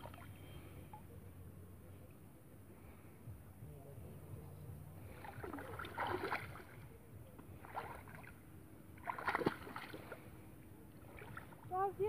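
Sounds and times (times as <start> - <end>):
water splashing and sloshing: 0.0 - 1.0, 5.0 - 12.0.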